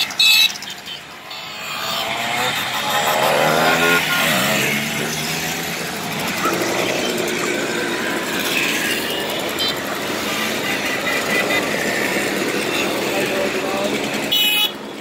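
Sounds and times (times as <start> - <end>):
mopeds buzzing past: 0.2 - 14.3.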